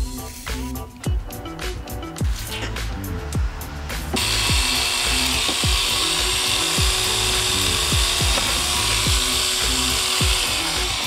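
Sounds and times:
music with a regular beat: 0.0s - 11.0s
angle grinder grinding rust: 3.8s - 11.0s.

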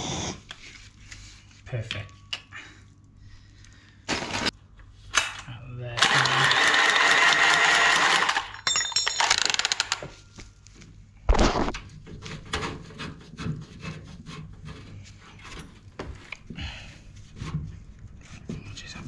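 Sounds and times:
cordless power tool running: 6.0s - 8.5s.

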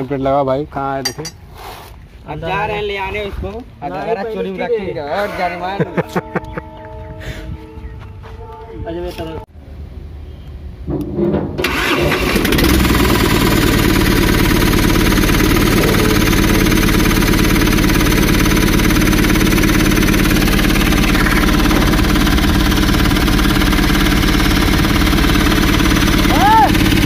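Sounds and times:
diesel engine idling: 11.6s - 27.0s.

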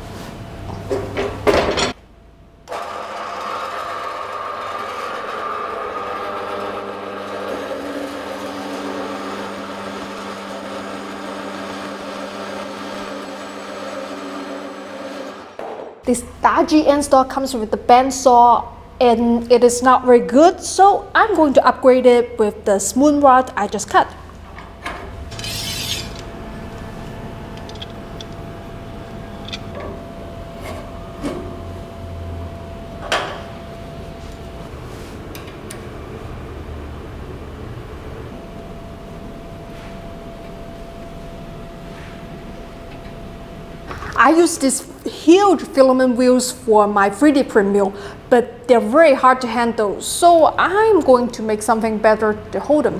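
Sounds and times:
bandsaw cutting steel: 2.7s - 15.6s, 25.3s - 26.3s.

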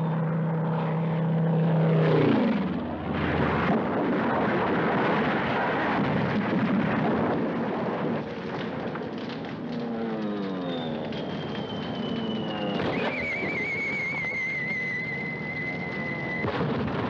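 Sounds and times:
aircraft engine drone: 0.0s - 17.0s
aircraft crash explosion: 2.5s - 9.4s, 16.3s - 17.0s.

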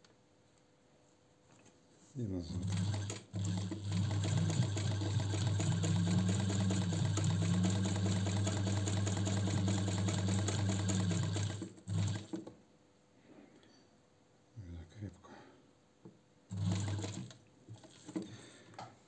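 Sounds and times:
sewing machine stitching: 2.4s - 12.5s, 16.5s - 18.3s.

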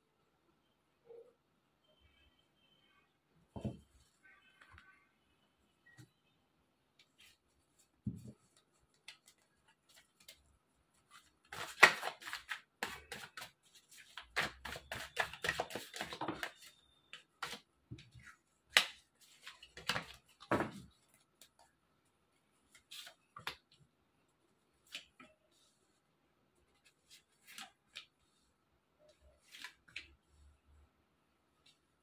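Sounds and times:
cards being shuffled: 11.0s - 16.6s.

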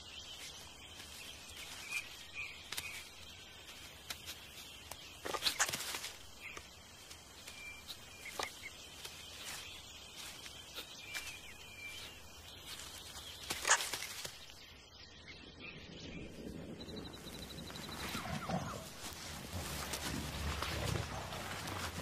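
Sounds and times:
forest ambience: 0.0s - 22.0s
animal clicks and chirps: 4.1s - 6.7s, 12.6s - 14.6s.

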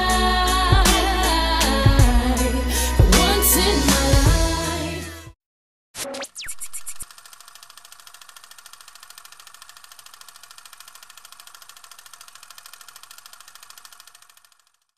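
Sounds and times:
film projector clattering: 7.0s - 14.9s.

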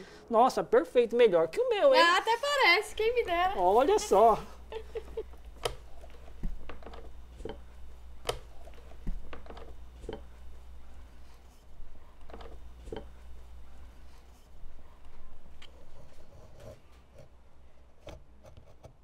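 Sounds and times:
low hum: 2.8s - 17.6s.

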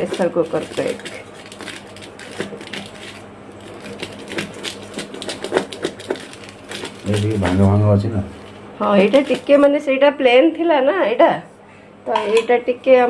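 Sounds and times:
knife scraping metal tin: 12.2s - 12.5s.

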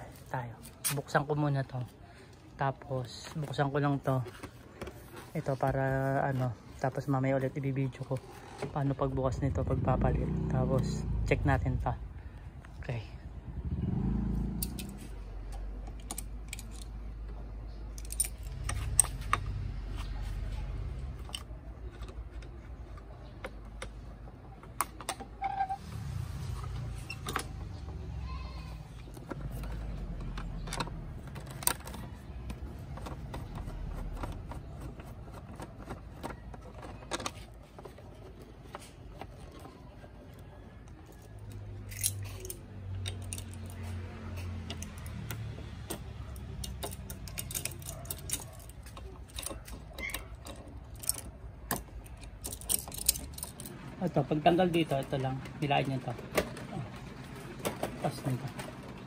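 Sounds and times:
metal and plastic clicks and taps: 14.6s - 17.4s.

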